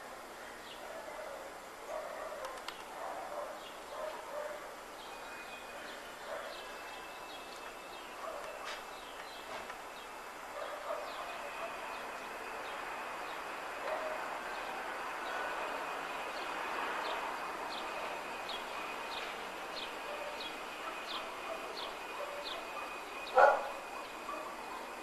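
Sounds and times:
loud dog bark: 0.8s - 4.7s, 10.5s - 12.0s, 13.8s - 14.3s, 20.1s - 24.7s.

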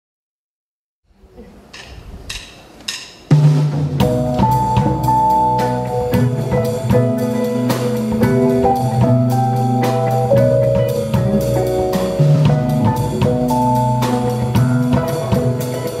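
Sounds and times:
drum kit: 1.6s - 16.0s
jazz band playing: 3.3s - 16.0s.

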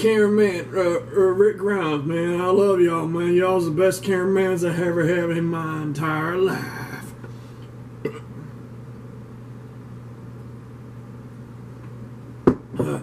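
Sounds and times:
steady low hum: 0.0s - 13.0s
loud sharp knock: 12.4s - 12.6s.

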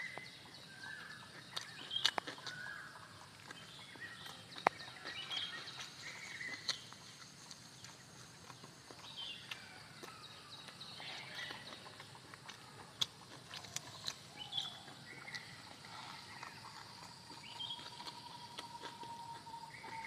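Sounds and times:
birds chirping: 0.0s - 20.0s
wet chewing and lip-smacking: 0.0s - 20.0s.

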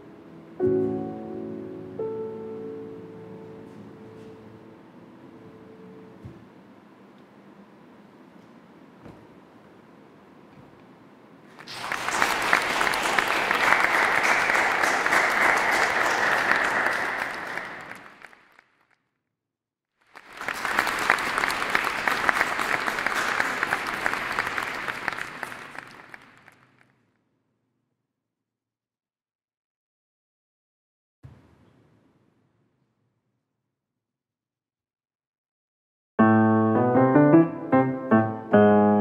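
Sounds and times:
audience applauding: 11.5s - 18.8s, 20.1s - 26.9s.

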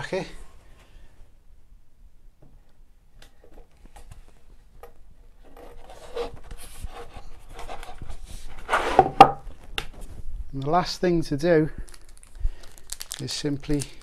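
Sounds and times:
shelf scraping on metal dowels: 5.8s - 9.2s.

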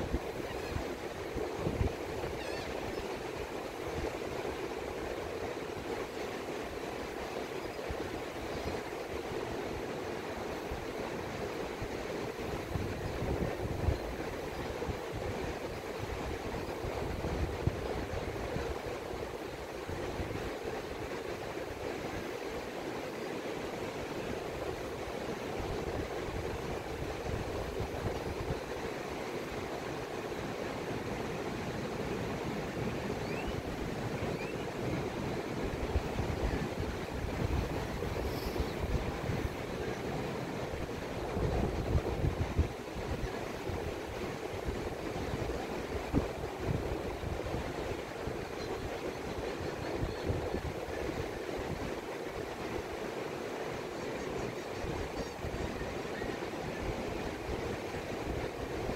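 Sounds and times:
wind rumbling on microphone: 0.0s - 4.4s, 11.8s - 22.4s, 24.0s - 30.5s, 31.1s - 53.0s.

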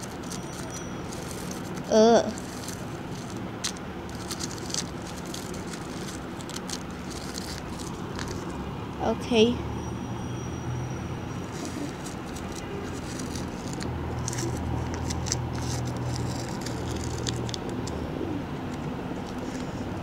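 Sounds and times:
paper being handled: 0.0s - 8.5s, 11.5s - 17.8s.

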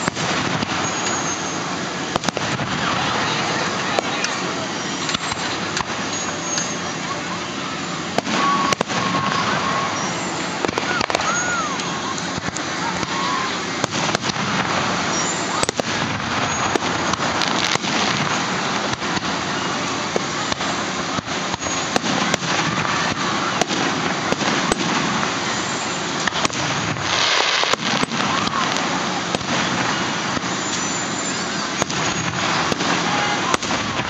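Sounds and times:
fireworks bangs and crackles: 0.0s - 34.0s.

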